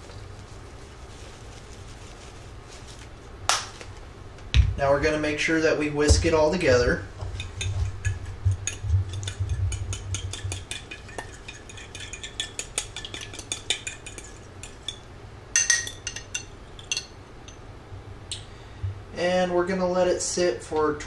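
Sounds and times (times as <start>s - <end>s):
fork whisking in a bowl: 6.1s - 15.1s.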